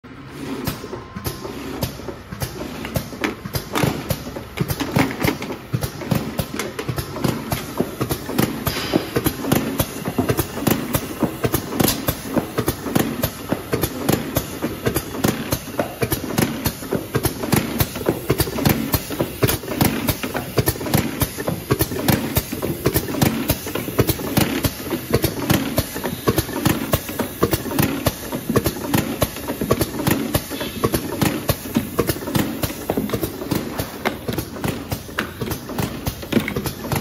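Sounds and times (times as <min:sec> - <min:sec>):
steady mechanical hum: 0:00.0 - 0:37.0
clatter of clicks and knocks: 0:28.5 - 0:37.0.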